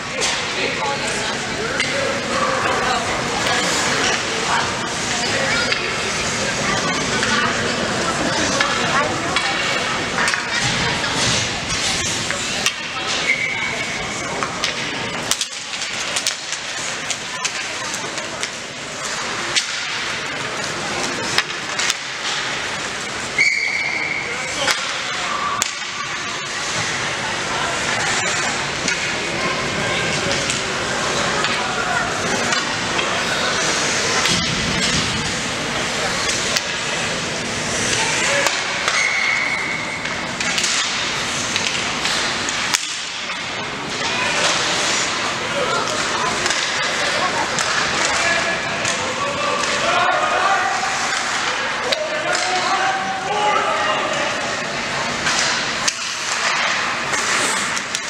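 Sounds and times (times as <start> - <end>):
spectators talking: 0.0 - 58.0
hockey sticks and puck clacking: 0.1 - 58.0
referee's whistle: 23.4 - 24.2
skates hissing on ice: 44.3 - 45.3, 56.0 - 58.0.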